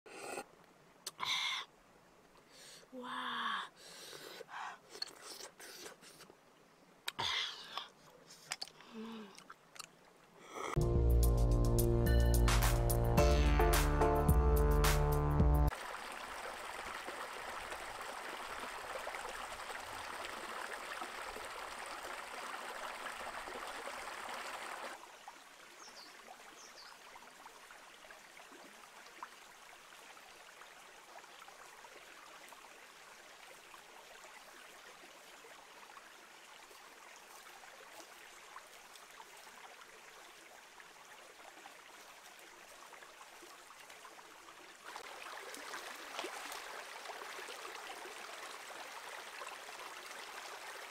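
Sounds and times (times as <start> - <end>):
faint steady hiss: 0.1 - 10.8
water rushing over stones: 15.7 - 25.0, 44.8 - 50.9.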